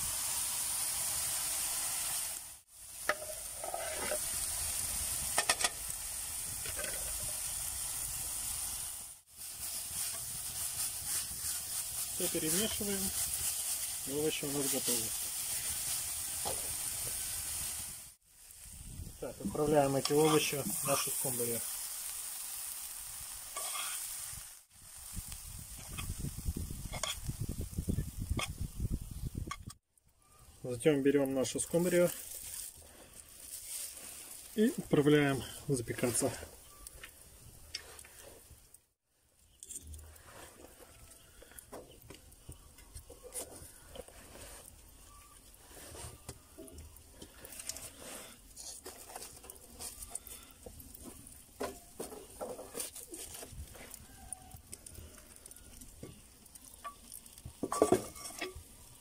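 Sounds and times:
vegetables sizzling in oil: 0.0s - 29.5s, 30.3s - 38.8s, 40.5s - 59.0s
metal spoon scraping a pan: 3.0s - 4.4s, 19.8s - 21.4s, 23.5s - 24.1s, 26.9s - 27.3s, 56.7s - 58.6s.

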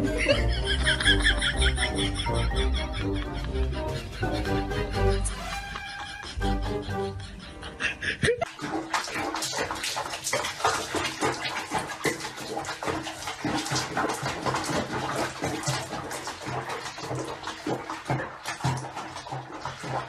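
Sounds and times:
bathwater sloshing and splashing: 0.0s - 3.0s, 8.4s - 20.0s.

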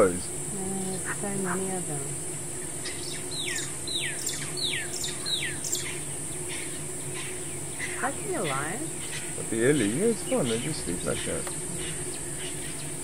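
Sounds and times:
high-pitched insect buzz: 0.0s - 13.0s
low steady hum: 0.0s - 13.0s
bird chirps: 2.6s - 13.0s
bird whistling downward notes: 2.8s - 6.8s.

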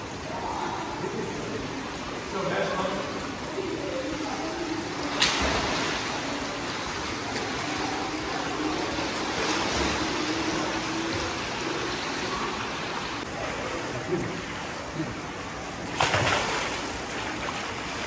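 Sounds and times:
faint distant voices: 0.0s - 16.6s
water running and splashing: 15.7s - 18.0s.

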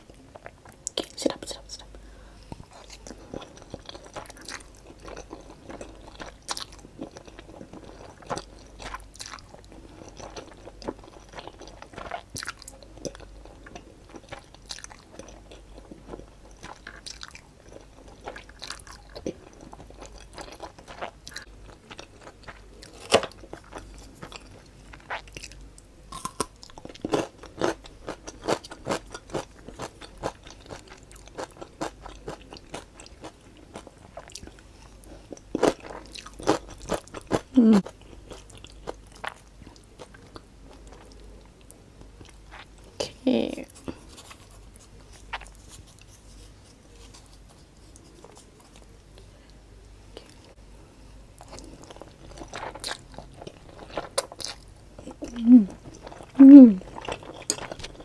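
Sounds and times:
noodles slurped and chewed: 51.4s - 58.0s.

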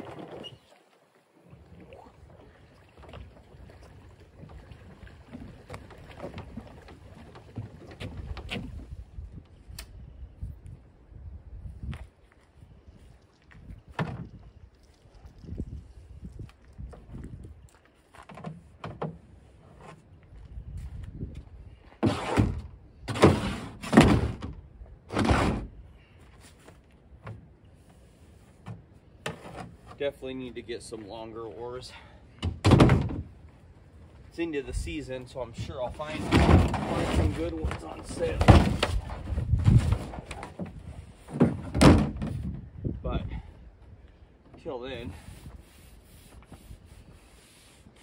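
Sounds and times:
wind rumbling on microphone: 1.4s - 18.0s, 20.1s - 26.0s, 32.6s - 48.0s
plastic kayak scraping: 22.0s - 24.4s, 25.1s - 25.8s, 35.7s - 42.6s
kayak thuds: 32.3s - 33.4s, 36.0s - 42.8s.

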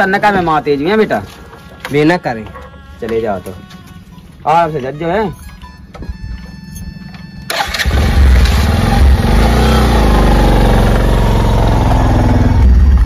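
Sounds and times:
engine starting and running: 7.3s - 13.0s.

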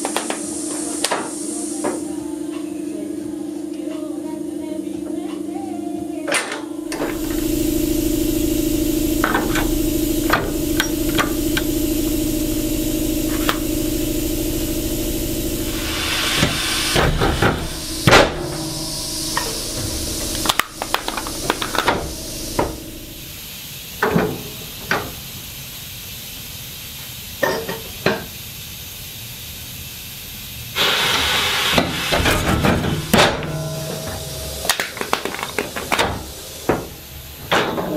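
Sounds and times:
hissing burst: 0.0s - 2.2s, 6.9s - 27.4s, 28.3s - 37.5s
motor hum: 6.6s - 25.4s, 30.8s - 37.5s.

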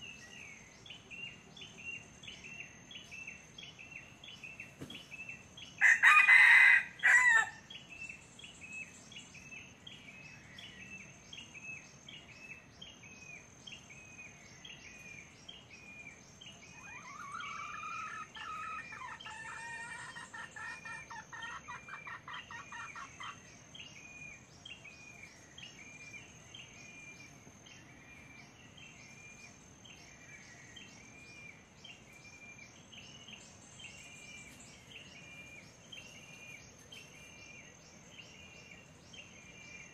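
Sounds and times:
rooster crowing: 5.8s - 7.6s.

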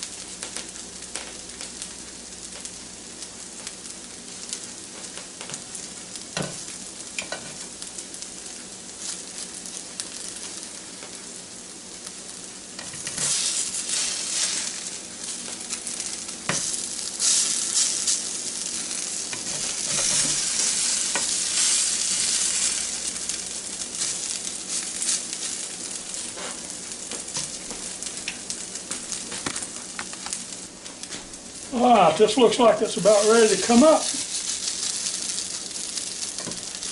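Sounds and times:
hash browns sizzling in pan: 0.0s - 36.9s
spatula scraping and clicking pan: 12.8s - 14.5s, 19.3s - 22.2s.

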